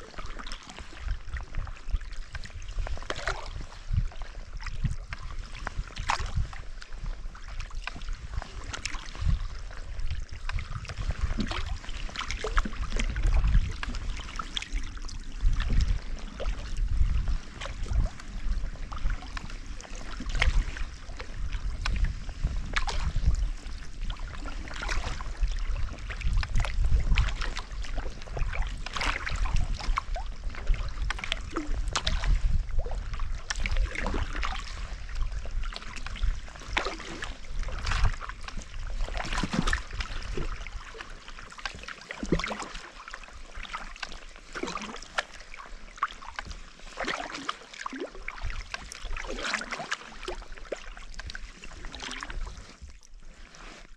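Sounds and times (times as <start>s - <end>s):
paddle splashes and drips: 0.0s - 53.9s
water trickling along hull: 0.0s - 53.9s.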